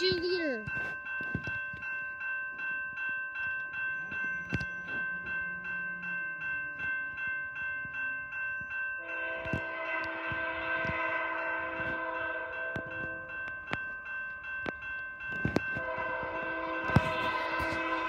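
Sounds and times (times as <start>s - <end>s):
railway crossing bell ringing: 0.0s - 18.0s
train locomotive horn: 9.0s - 13.0s, 15.8s - 18.0s.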